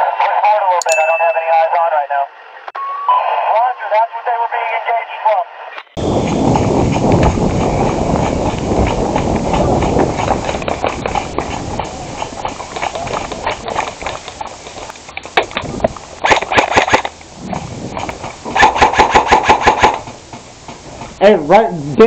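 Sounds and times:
jostling movement noise: 6.2s - 21.2s
rapid airsoft gun shots: 16.2s - 17.1s, 18.5s - 20.2s.

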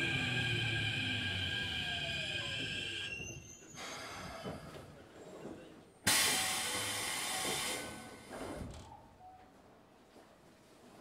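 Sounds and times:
train low rumble: 0.0s - 8.7s.

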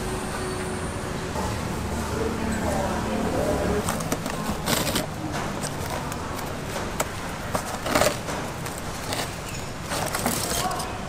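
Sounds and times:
cardboard and sack crinkling: 3.8s - 6.5s, 7.4s - 11.0s
scissors snipping plastic strapping: 3.8s - 10.9s.

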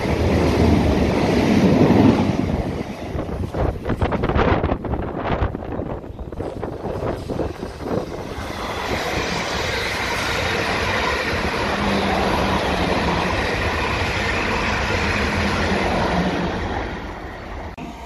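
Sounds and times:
train wheels rushing on rails: 0.0s - 18.0s.

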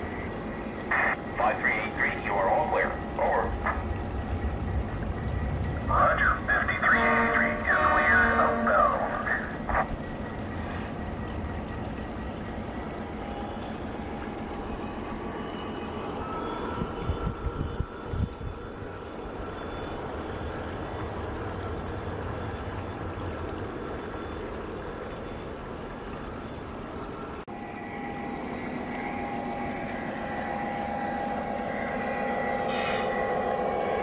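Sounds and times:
waterfall rushing: 0.0s - 11.1s.

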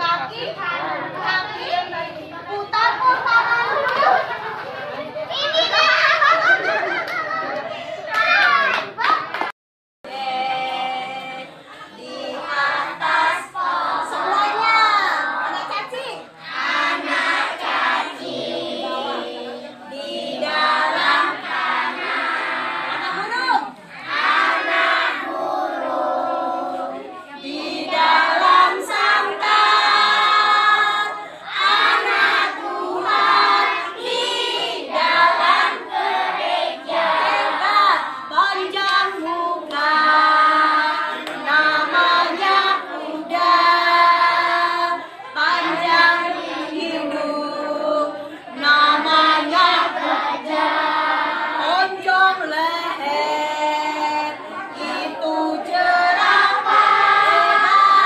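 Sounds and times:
children singing: 10.1s - 23.2s, 23.9s - 58.0s.

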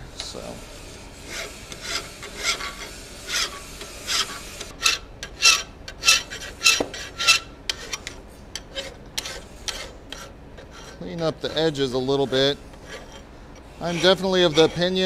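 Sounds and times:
hand file rasping on steel: 0.4s - 15.0s.

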